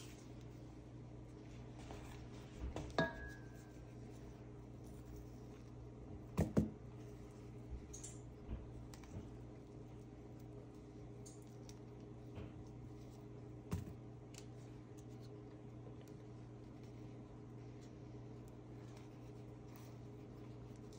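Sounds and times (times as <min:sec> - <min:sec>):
steady low hum: 0:00.0 - 0:20.9.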